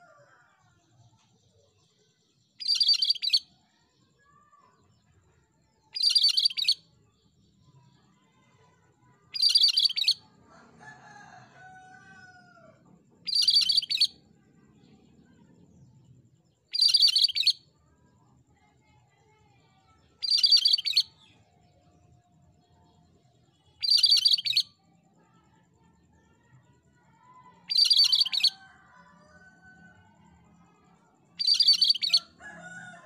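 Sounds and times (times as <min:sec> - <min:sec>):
bird singing trilling phrases: 0:02.6 - 0:04.5, 0:05.8 - 0:06.9, 0:09.3 - 0:10.3, 0:13.2 - 0:14.2, 0:16.6 - 0:17.7, 0:20.1 - 0:22.1, 0:23.6 - 0:24.8, 0:27.4 - 0:30.0, 0:31.3 - 0:32.7.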